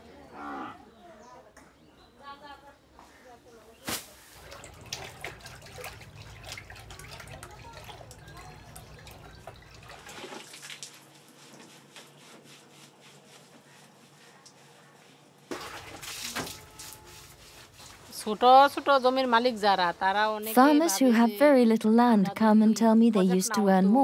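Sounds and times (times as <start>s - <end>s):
cow slurping water: 4.4s - 11.9s, 15.5s - 18.0s.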